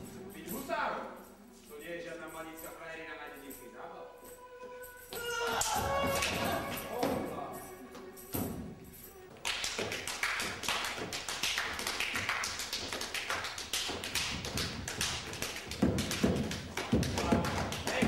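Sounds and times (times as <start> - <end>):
boots stamping on wooden stage: 14.0 - 18.0.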